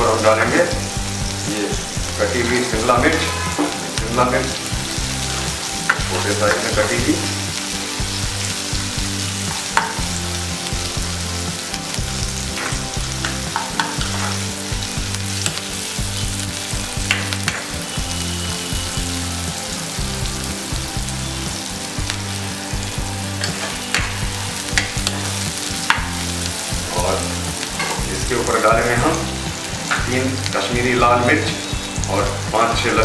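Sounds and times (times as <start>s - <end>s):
vegetables sizzling in oil: 0.0s - 33.0s
spatula scraping pan: 2.4s - 4.0s, 23.4s - 24.1s.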